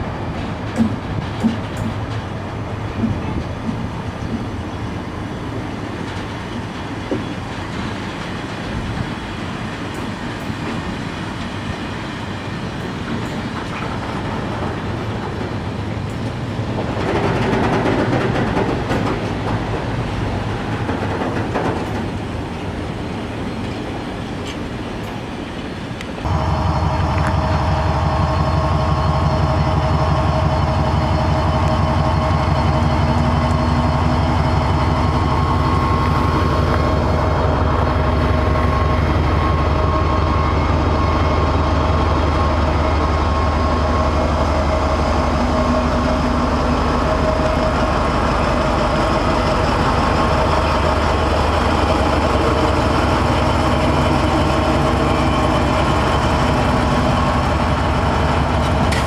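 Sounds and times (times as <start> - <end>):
diesel locomotive engine humming: 0.0 - 59.0
train wheels rattling over rails: 0.0 - 59.0.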